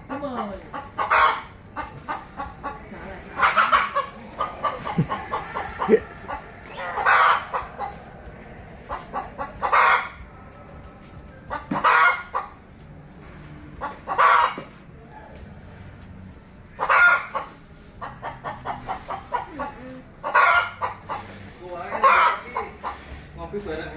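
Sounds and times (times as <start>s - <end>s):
chicken squawking: 0.1s - 2.8s, 3.4s - 8.0s, 8.9s - 10.2s, 11.5s - 12.6s, 13.8s - 14.6s, 16.8s - 23.2s
chicken clucking: 0.1s - 12.6s, 13.2s - 15.0s, 16.0s - 23.4s.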